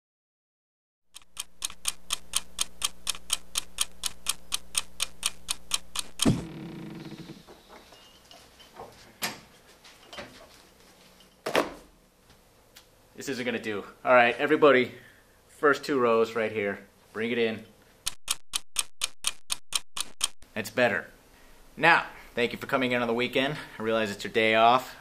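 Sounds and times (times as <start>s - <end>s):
rapid even ticking: 1.1s - 7.3s, 18.0s - 20.4s.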